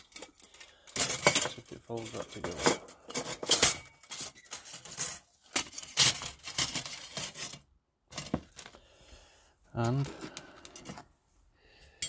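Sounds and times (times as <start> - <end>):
steel plates clacking and scraping: 0.0 - 7.6.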